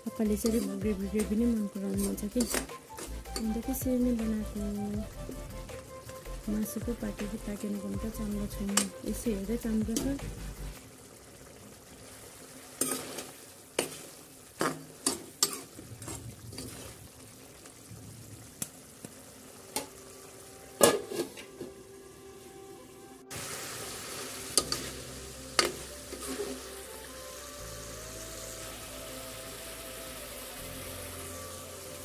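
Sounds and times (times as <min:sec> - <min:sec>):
thick gravy sizzling: 0:00.0 - 0:32.0
metal spoon clinking on pan: 0:15.0 - 0:15.7.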